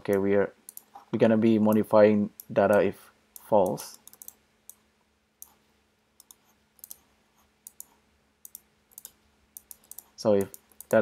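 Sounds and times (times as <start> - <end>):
faint steady hum: 0.0 - 11.0
mouse and keyboard clicking: 0.1 - 1.0, 3.4 - 4.8, 6.2 - 11.0.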